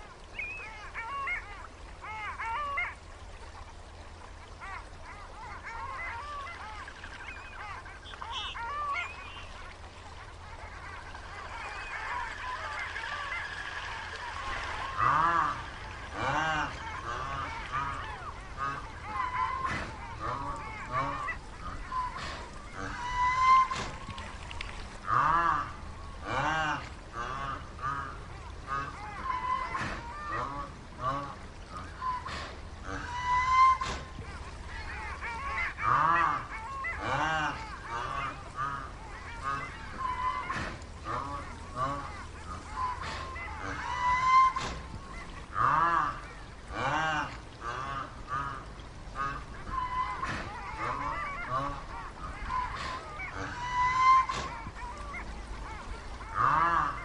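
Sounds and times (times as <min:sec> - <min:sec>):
honking animal calls: 0:05.6 - 0:09.6, 0:25.0 - 0:57.0
small birds chirping: 0:06.8 - 0:09.7.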